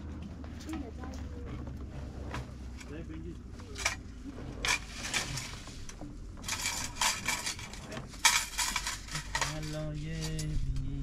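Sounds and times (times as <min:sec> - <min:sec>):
spoons clinking on metal plates: 0:06.5 - 0:10.5.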